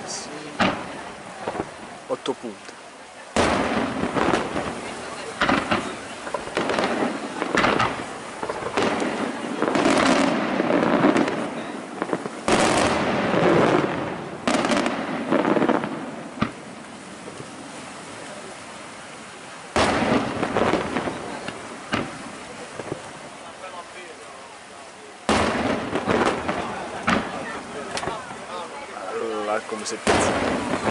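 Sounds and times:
firework shells bursting: 0:03.4 - 0:16.7, 0:19.7 - 0:23.1, 0:25.3 - 0:28.3.

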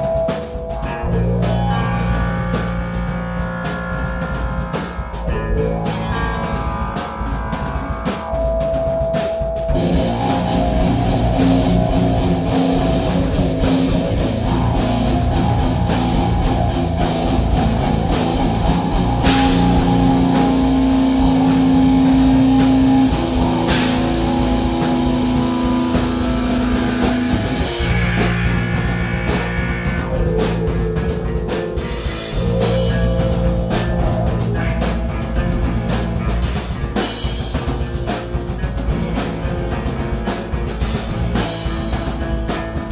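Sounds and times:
drum kit: 0:00.0 - 0:42.9
guitar with long held notes: 0:00.0 - 0:42.9
cymbal crashes: 0:10.1 - 0:30.2.

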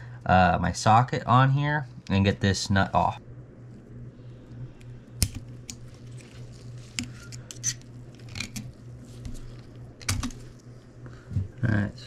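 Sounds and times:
small metal clicks and scrapes: 0:05.2 - 0:09.4.

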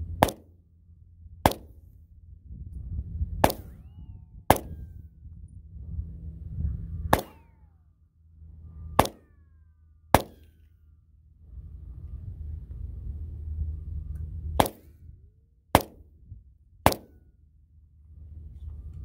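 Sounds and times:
pistol shots: 0:00.2 - 0:00.5, 0:01.5 - 0:01.7, 0:03.4 - 0:03.8, 0:04.5 - 0:04.8, 0:07.1 - 0:07.5, 0:09.0 - 0:09.3, 0:10.1 - 0:10.6, 0:14.6 - 0:14.9, 0:15.8 - 0:16.0, 0:16.9 - 0:17.2.

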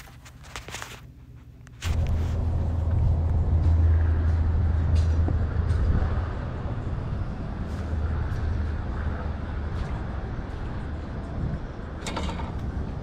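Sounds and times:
engine running low rumble: 0:01.4 - 0:13.0.

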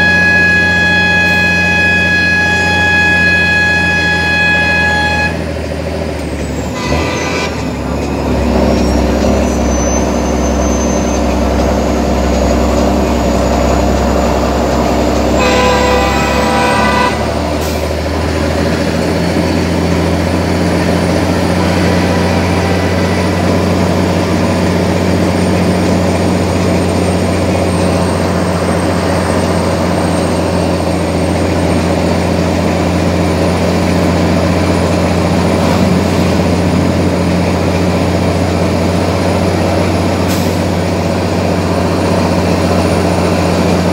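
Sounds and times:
truck horn toots: 0:00.0 - 0:05.7, 0:06.6 - 0:26.8
diesel truck engine running: 0:00.0 - 0:43.9.

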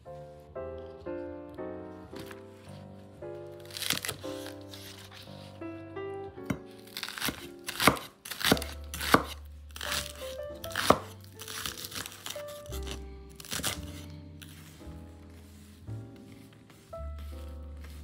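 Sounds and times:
background music: 0:00.0 - 0:18.0
knife chopping on wooden board: 0:06.4 - 0:14.0.

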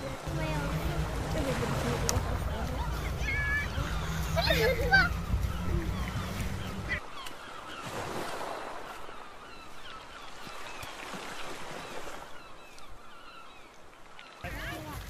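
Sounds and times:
wind rumble on microphone: 0:00.0 - 0:07.0
water sloshing around kayak: 0:00.0 - 0:15.0.

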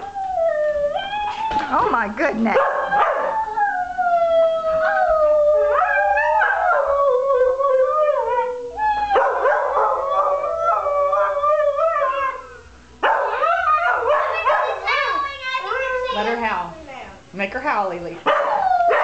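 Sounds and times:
dog howling: 0:00.0 - 0:01.8, 0:02.6 - 0:16.4, 0:18.3 - 0:19.0.

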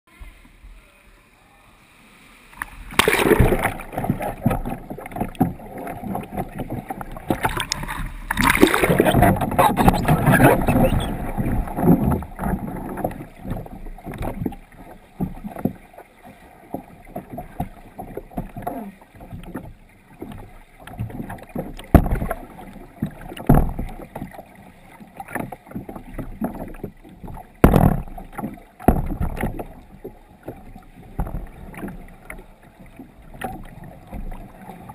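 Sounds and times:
muffled underwater water sloshing: 0:01.9 - 0:34.9
knocks on kayak hull: 0:21.0 - 0:22.4, 0:23.0 - 0:24.4, 0:27.4 - 0:29.7.

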